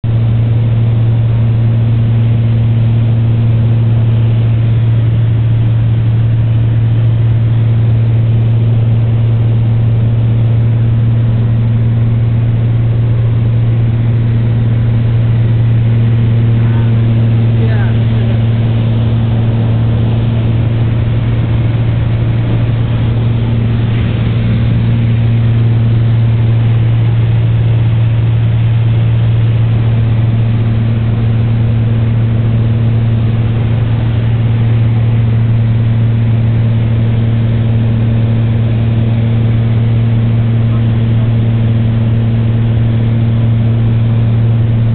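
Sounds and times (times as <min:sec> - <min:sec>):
piston engine and propeller droning: 0:00.0 - 0:44.9.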